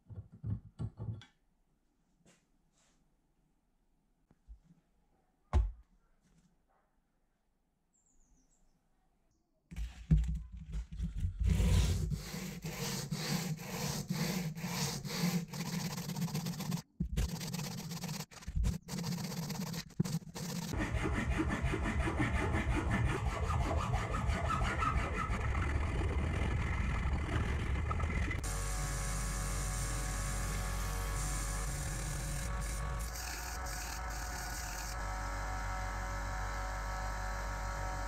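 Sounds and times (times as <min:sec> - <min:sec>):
hand sanding metal: 0:11.5 - 0:25.3
belt sander motor: 0:25.4 - 0:38.0.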